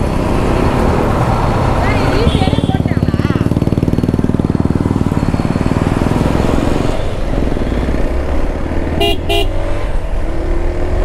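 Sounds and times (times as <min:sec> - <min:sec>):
motorcycle engine running: 0:01.4 - 0:10.8
horn toots: 0:09.0 - 0:09.6.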